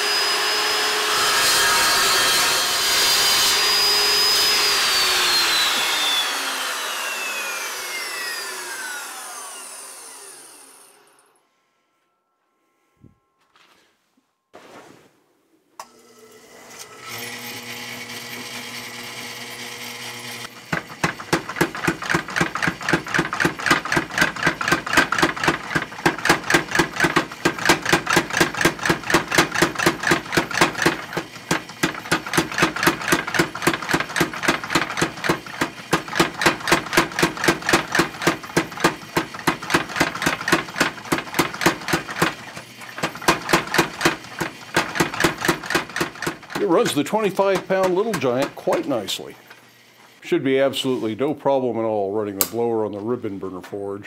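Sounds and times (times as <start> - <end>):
electric motor humming: 0.0 - 11.3, 15.8 - 50.2
power hammer striking steel: 20.7 - 49.2.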